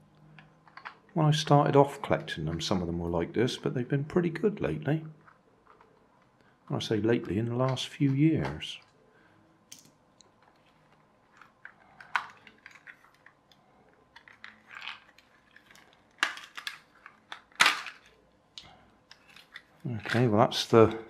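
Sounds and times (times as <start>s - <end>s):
plastic toy car clicks and knocks: 0.2s - 1.1s, 9.7s - 20.9s.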